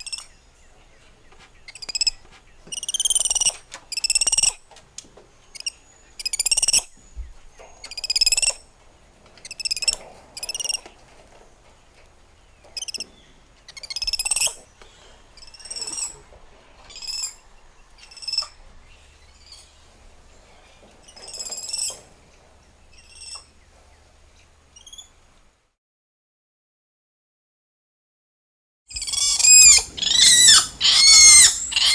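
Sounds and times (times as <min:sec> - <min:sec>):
monkeys chirping: 0:00.0 - 0:00.4, 0:01.4 - 0:04.7, 0:05.5 - 0:06.9, 0:07.6 - 0:08.6, 0:09.4 - 0:10.8, 0:12.8 - 0:19.8, 0:20.5 - 0:22.1, 0:22.9 - 0:23.5, 0:28.9 - 0:31.9.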